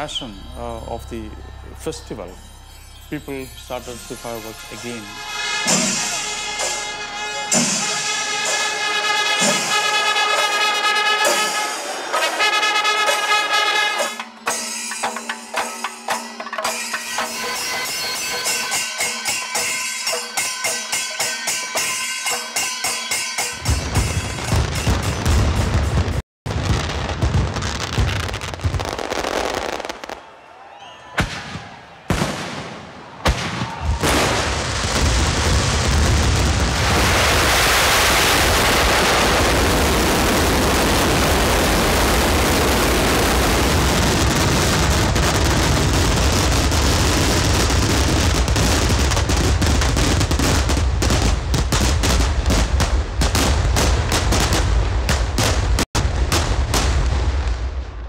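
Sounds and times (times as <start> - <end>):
hand cymbals and drums playing: 2.4 - 25.2
fireworks banging: 22.6 - 58.0.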